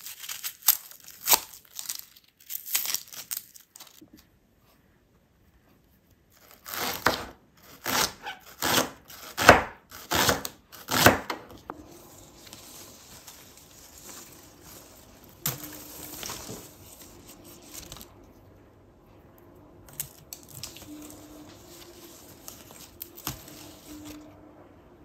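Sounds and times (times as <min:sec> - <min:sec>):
rustling: 0:11.6 - 0:24.3.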